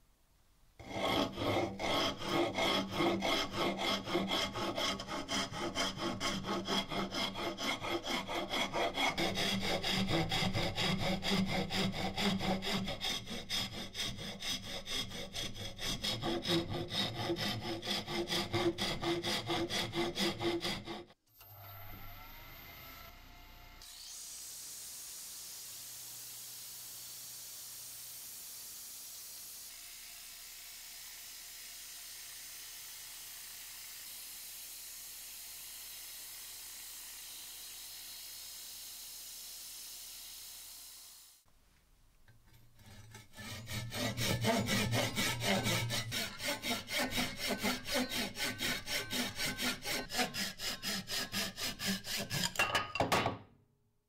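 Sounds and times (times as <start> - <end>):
hand saw cutting wood: 0.8 - 21.2, 22.0 - 41.5, 42.3 - 52.7
sanding wood on a lathe: 0.8 - 21.2, 23.9 - 41.2, 42.8 - 52.5
faint motor hum: 21.3 - 23.9.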